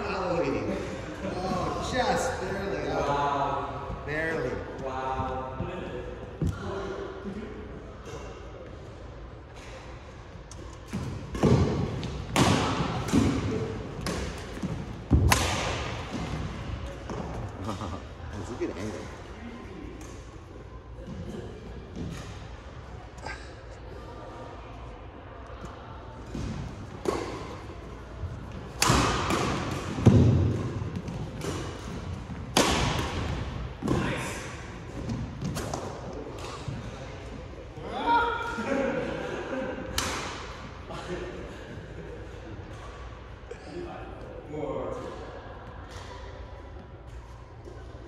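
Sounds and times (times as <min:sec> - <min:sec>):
rackets hitting shuttlecock: 0:10.5 - 0:17.9, 0:26.3 - 0:27.7, 0:28.5 - 0:36.8, 0:39.9 - 0:40.6.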